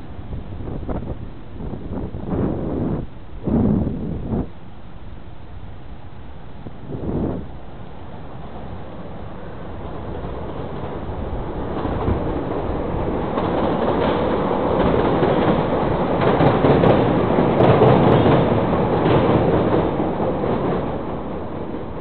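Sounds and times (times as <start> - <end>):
train wheels clattering on track: 9.4 - 22.0.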